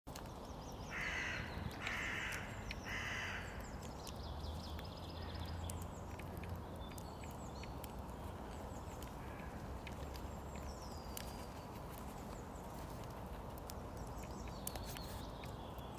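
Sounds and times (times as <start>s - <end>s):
small birds twittering: 0.1s - 15.9s
crow cawing: 0.9s - 3.6s, 9.2s - 9.7s.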